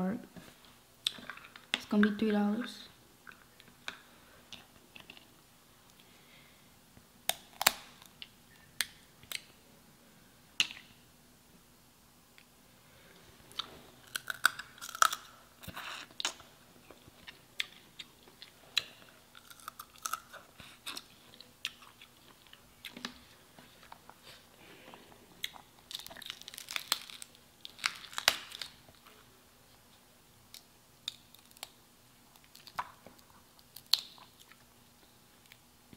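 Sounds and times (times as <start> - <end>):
chewing: 13.5 - 27.0.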